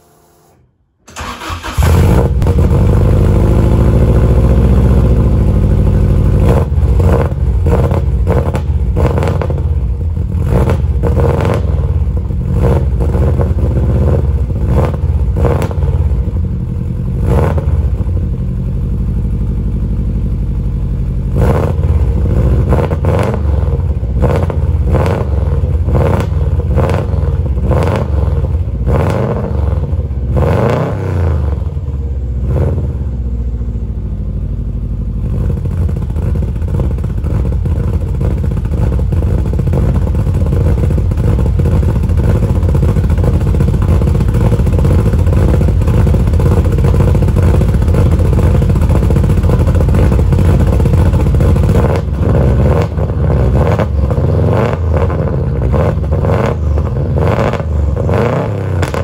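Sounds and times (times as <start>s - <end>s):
sharp exhaust pops: 6.0s - 9.7s, 35.2s - 59.0s
lumpy car engine idle: 17.8s - 21.4s, 31.8s - 52.3s.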